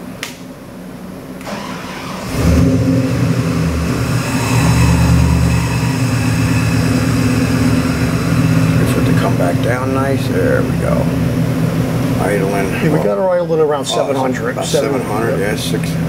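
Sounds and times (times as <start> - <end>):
engine starting and idling: 1.4 - 11.6.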